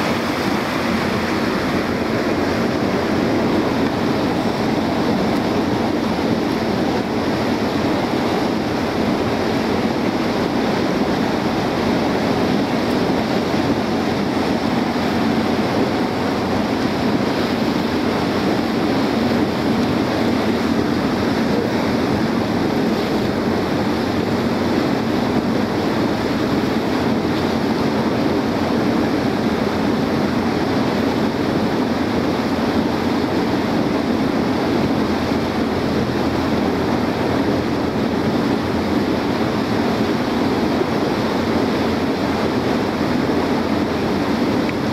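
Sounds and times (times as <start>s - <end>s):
motorboat engine and water: 0.0s - 44.9s
wind on microphone: 0.0s - 44.9s.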